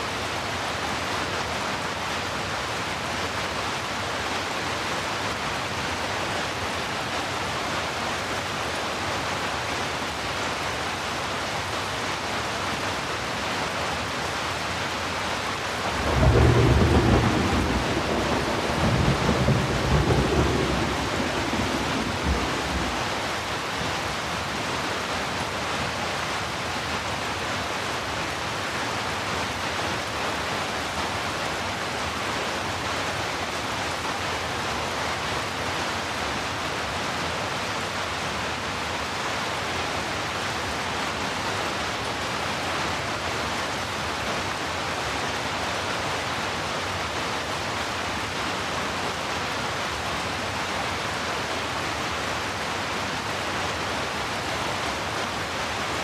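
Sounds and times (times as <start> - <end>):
heavy rain: 0.0 - 56.0
thunder rumbling: 16.0 - 23.3.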